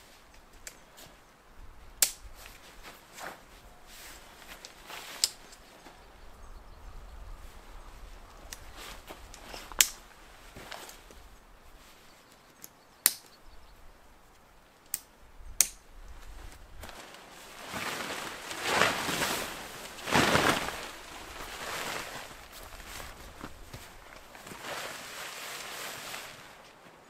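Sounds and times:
sharp plastic clips clicking: 2.0 - 2.3, 9.3 - 10.0, 12.5 - 13.4, 14.8 - 16.2
tent fabric rustling: 2.2 - 6.3, 7.2 - 12.3, 16.0 - 27.0.

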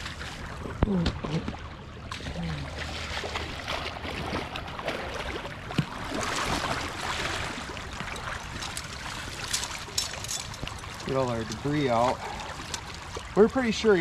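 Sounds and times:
boots wading through water: 0.0 - 14.0
water dripping: 7.6 - 14.0.

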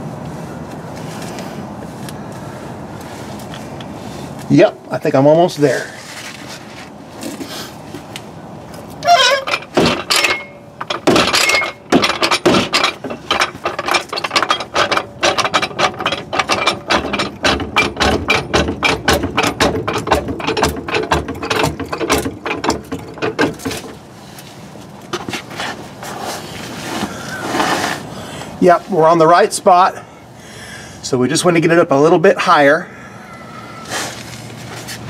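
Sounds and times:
floor jack clicking: 9.2 - 24.0
knocks: 9.5 - 24.0.

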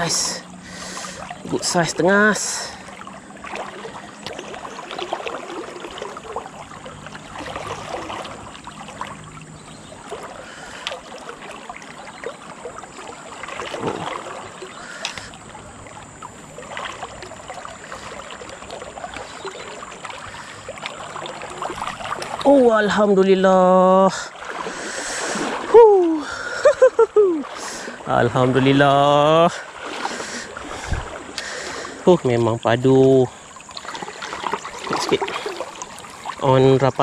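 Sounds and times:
shallow river current: 0.0 - 37.0
small splashes and clicks: 2.9 - 15.6, 16.2 - 22.6, 33.6 - 36.4.

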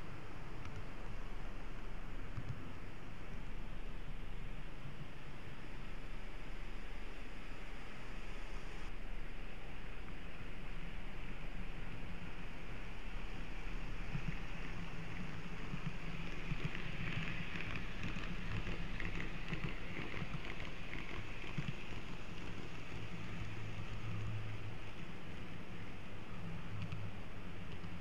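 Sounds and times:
wheels hissing on rails: 0.0 - 28.0
model train motor hum: 10.5 - 28.0.

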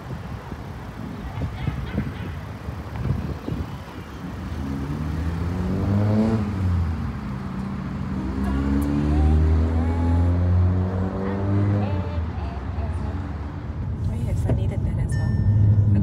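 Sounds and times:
car engine accelerating: 2.7 - 16.0.

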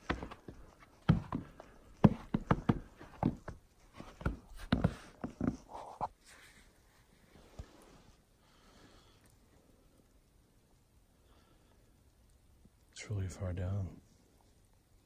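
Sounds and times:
footsteps on snowy planks: 0.0 - 6.2.

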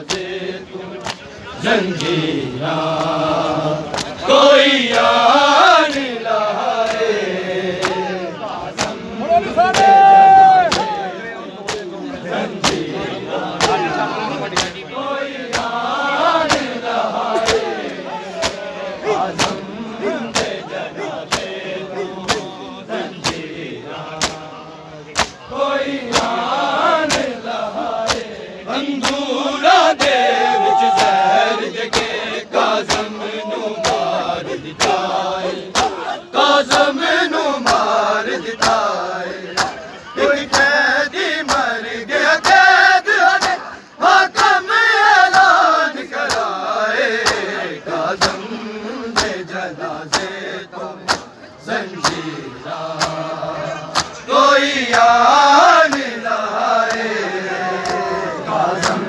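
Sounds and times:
hands slapping bare chests: 0.0 - 0.3, 1.0 - 1.3, 3.9 - 4.2, 6.8 - 7.2, 7.8 - 8.1, 8.7 - 9.0, 9.7 - 10.0, 10.6 - 11.0, 11.6 - 11.9, 12.6 - 12.9, 13.5 - 14.8, 15.4 - 22.6, 23.2 - 23.5, 24.1 - 25.4, 26.0 - 32.2, 32.8 - 33.2, 33.8 - 36.1, 37.6 - 37.9, 38.6 - 39.8, 40.4 - 40.8, 41.4 - 41.8, 43.3 - 43.6, 46.2 - 46.6, 47.2 - 48.4, 49.1 - 50.4, 51.0 - 51.4, 52.0 - 52.3, 53.0 - 53.3, 53.9 - 54.2, 56.8 - 57.1, 57.8 - 58.1, 58.8 - 59.0
crowd of men chanting: 0.0 - 59.0.

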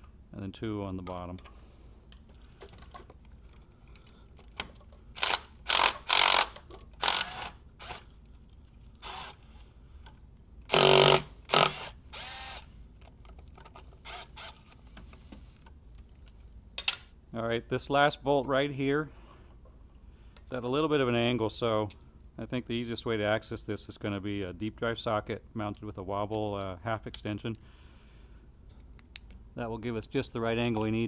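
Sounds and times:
ratchet wrench clicking: 5.2 - 8.1.

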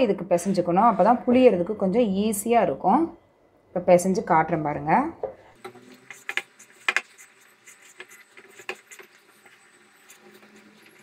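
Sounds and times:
hands kneading dough: 5.9 - 11.0.

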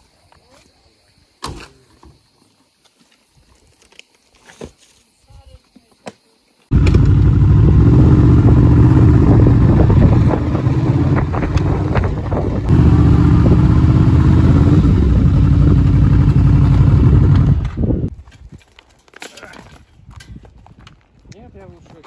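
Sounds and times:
engine running loud: 6.7 - 18.0.

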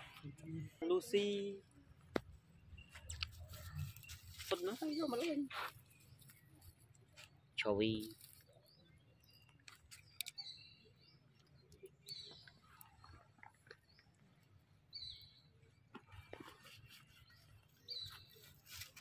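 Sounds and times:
faint bird chirps: 0.0 - 19.0
small clicks: 9.5 - 10.4.

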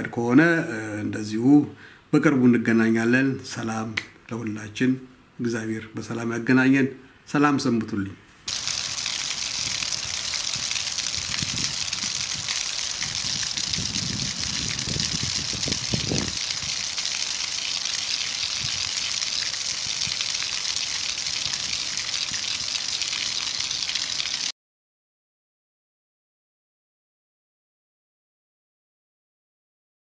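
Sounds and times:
water gushing onto pavement: 8.5 - 24.5.

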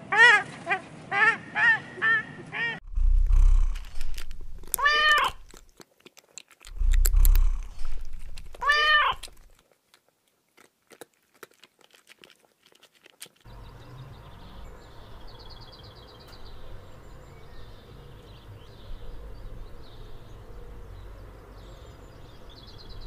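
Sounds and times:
cat purring: 2.8 - 5.6, 6.7 - 9.6
cat meowing: 4.6 - 5.6, 8.5 - 9.4
goose honking: 4.7 - 5.5, 8.6 - 9.3.

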